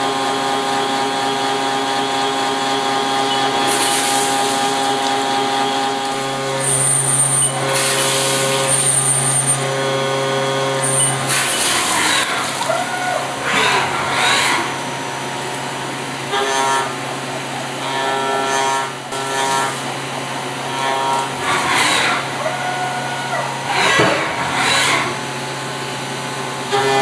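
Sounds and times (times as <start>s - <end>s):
cutting whine: 0.0s - 27.0s
milling machine motor hum: 0.0s - 27.0s
coolant spray hissing: 3.6s - 6.7s, 7.6s - 12.6s.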